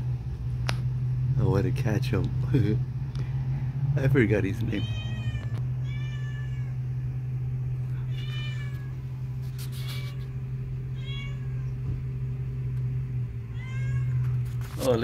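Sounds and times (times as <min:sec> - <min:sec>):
low hum: 0:00.0 - 0:14.8
cat meowing: 0:04.6 - 0:06.8, 0:07.8 - 0:11.9, 0:13.4 - 0:14.4.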